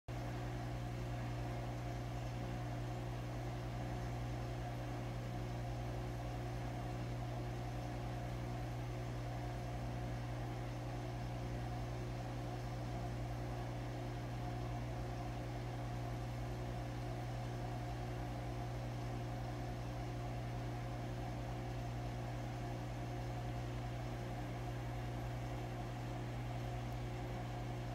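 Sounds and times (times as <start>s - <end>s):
aquarium pump humming: 0.1s - 27.9s.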